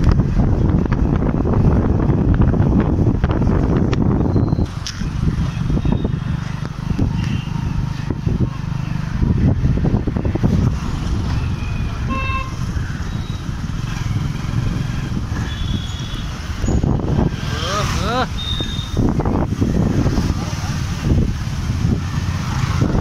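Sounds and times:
motorcycle engine running: 0:00.0 - 0:23.0
vehicle horn toot: 0:12.0 - 0:12.6, 0:15.4 - 0:16.4.

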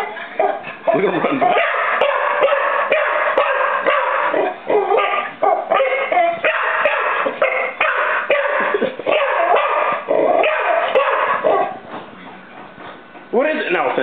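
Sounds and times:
dog barking and yipping: 0:00.0 - 0:11.8.

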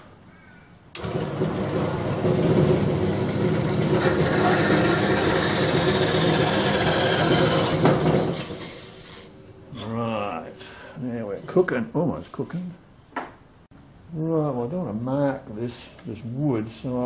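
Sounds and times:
bandsaw cutting wood: 0:01.0 - 0:09.3.

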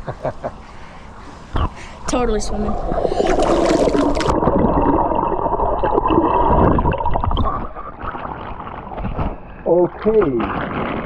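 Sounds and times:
muffled underwater gurgling: 0:02.1 - 0:09.0.

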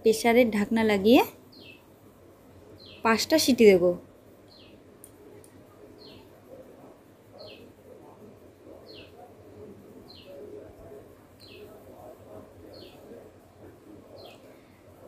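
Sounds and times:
faint background noise: 0:00.0 - 0:15.0
small bird calling: 0:01.2 - 0:01.9, 0:02.8 - 0:03.4, 0:04.5 - 0:13.3.

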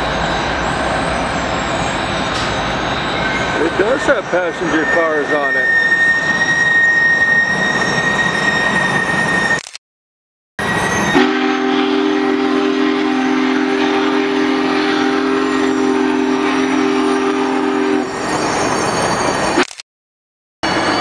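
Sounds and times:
train cars rumbling on rails: 0:00.0 - 0:09.6, 0:10.6 - 0:19.6
train horn chord: 0:11.2 - 0:18.1.

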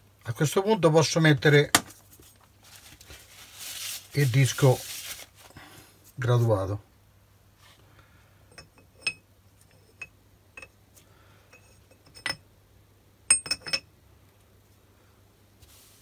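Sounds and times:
metal-on-metal clinks: 0:11.5 - 0:12.4, 0:13.3 - 0:13.9.

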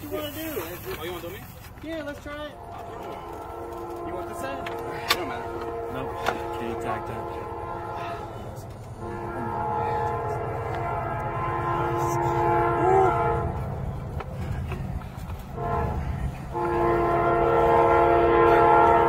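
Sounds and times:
horn blasts: 0:02.1 - 0:19.0.

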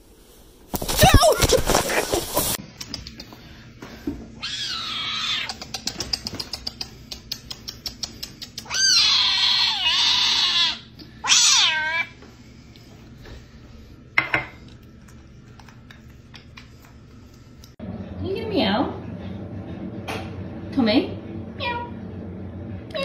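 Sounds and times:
kitten meowing: 0:08.6 - 0:12.1.

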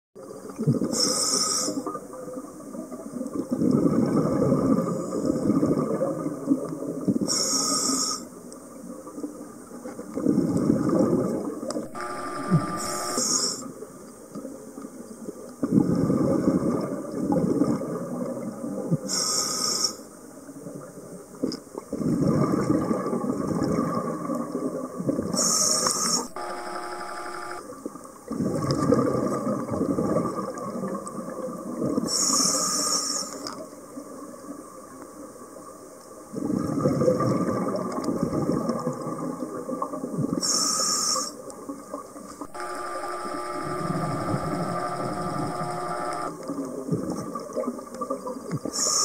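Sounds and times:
regulator inhale hiss: 0:00.9 - 0:01.9, 0:07.3 - 0:08.3, 0:19.1 - 0:20.0, 0:25.4 - 0:26.3, 0:32.1 - 0:33.4, 0:40.4 - 0:41.4
brief humming tone: 0:11.9 - 0:13.6, 0:26.3 - 0:27.6, 0:42.5 - 0:46.4.

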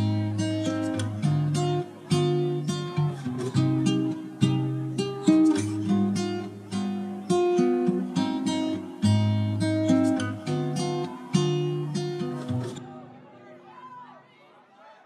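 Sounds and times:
acoustic guitar music: 0:00.0 - 0:13.4.

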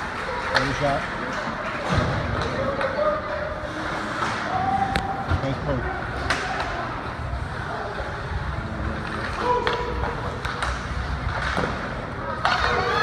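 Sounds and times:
hockey sticks and puck clacking: 0:00.0 - 0:05.1, 0:06.1 - 0:07.0, 0:08.8 - 0:13.0
din of spectators' voices: 0:00.0 - 0:13.0.

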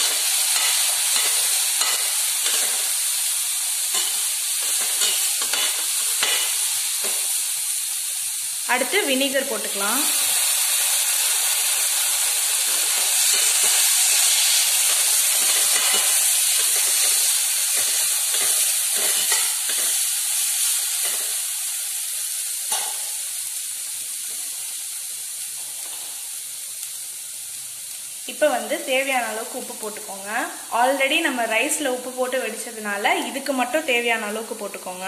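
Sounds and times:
spatula stirring in a pan: 0:00.0 - 0:03.0, 0:03.9 - 0:07.4, 0:12.4 - 0:21.4
vegetables sizzling in a hot pan: 0:00.0 - 0:35.0.

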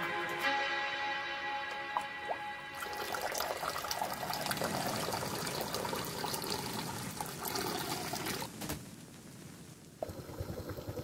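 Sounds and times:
water splashing: 0:01.8 - 0:08.6
water pouring into pot: 0:02.0 - 0:08.5.

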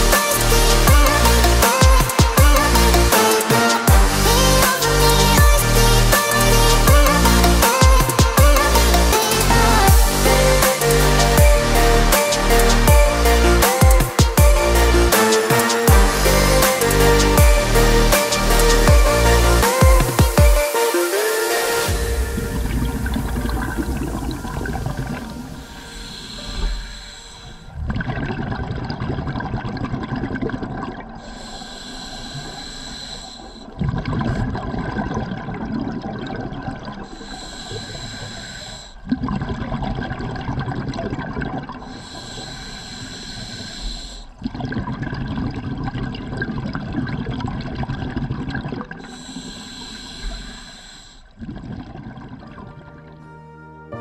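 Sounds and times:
exhaled bubbles rumbling: 0:21.9 - 0:26.0, 0:26.7 - 0:31.4, 0:33.6 - 0:37.1, 0:39.0 - 0:42.0, 0:44.3 - 0:49.6, 0:51.3 - 0:53.2
regulator inhale hiss: 0:25.4 - 0:27.7, 0:31.2 - 0:33.8, 0:37.1 - 0:39.0, 0:41.9 - 0:44.4, 0:49.0 - 0:51.4.

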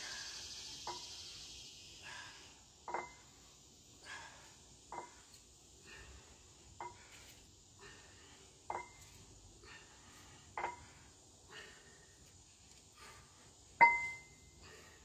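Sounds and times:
dumbbells clinking: 0:00.0 - 0:01.4, 0:02.8 - 0:05.5, 0:06.7 - 0:07.3, 0:08.6 - 0:09.2, 0:10.5 - 0:11.1, 0:13.8 - 0:14.8.

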